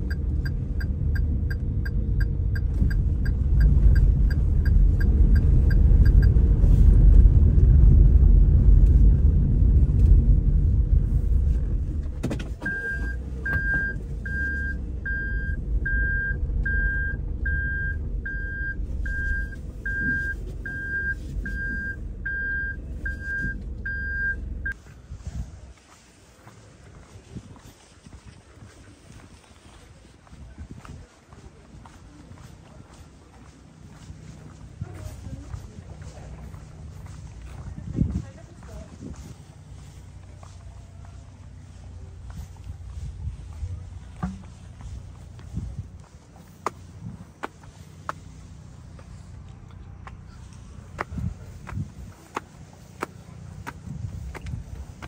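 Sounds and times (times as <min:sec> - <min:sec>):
car warning beep: 0:00.0 - 0:06.4, 0:12.6 - 0:24.8
car cabin rumble: 0:00.0 - 0:25.7, 0:31.6 - 0:55.0.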